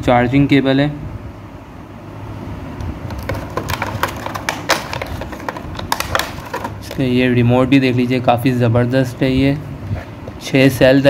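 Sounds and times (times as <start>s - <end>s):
plastic packaging crackling: 3.1s - 7.1s.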